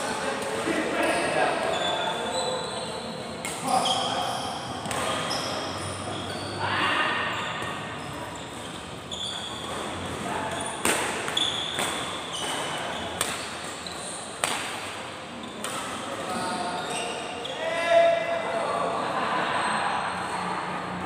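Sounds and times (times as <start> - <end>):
shoe squeaks on court floor: 1.0 - 14.4, 15.4 - 17.6
racket hitting shuttlecock: 4.8 - 5.2, 9.6 - 13.8, 14.4 - 15.0.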